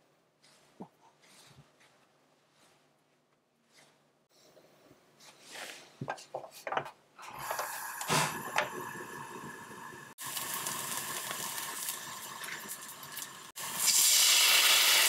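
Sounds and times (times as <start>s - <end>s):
oil sizzling and crackling: 7.3s - 15.0s
steady hiss of heating pan: 7.5s - 15.0s.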